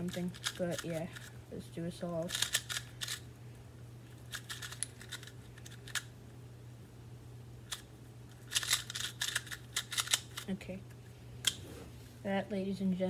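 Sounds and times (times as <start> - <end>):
speed cube layers clicking: 0.0 - 1.3, 2.2 - 3.2, 4.3 - 6.0, 8.5 - 10.5.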